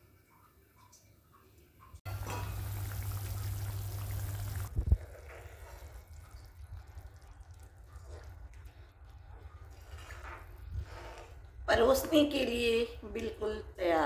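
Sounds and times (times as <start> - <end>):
sauce bubbling in a pan: 2.1 - 9.8.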